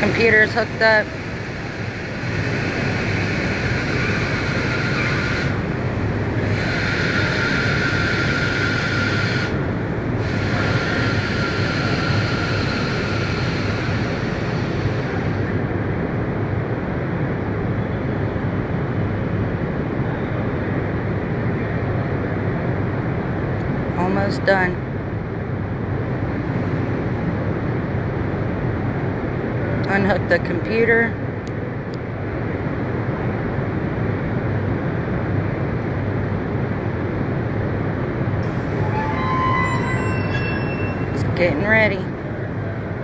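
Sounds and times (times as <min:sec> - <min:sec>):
car running on test rollers: 0:00.0 - 0:15.5.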